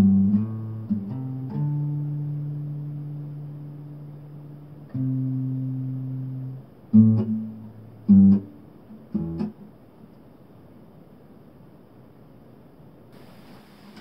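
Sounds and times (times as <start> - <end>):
guitar chords: 0.0 - 9.7.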